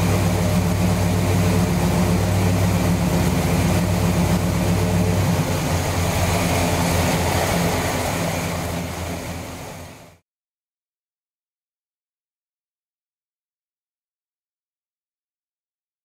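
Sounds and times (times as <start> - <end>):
engine idling: 0.0 - 10.2.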